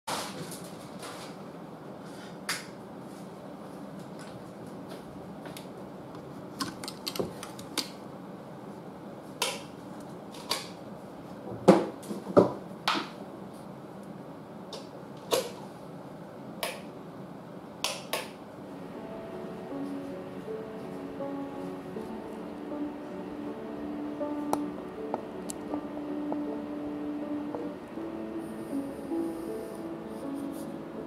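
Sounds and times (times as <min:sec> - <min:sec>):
low background hum: 0:00.1 - 0:31.0.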